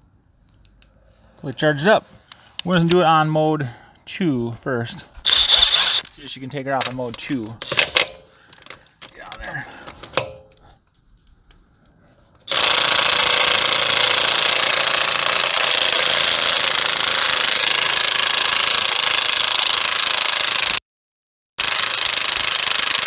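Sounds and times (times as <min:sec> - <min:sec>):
impact wrench hammering: 0:05.2 - 0:06.0, 0:10.1 - 0:10.6, 0:12.5 - 0:20.8.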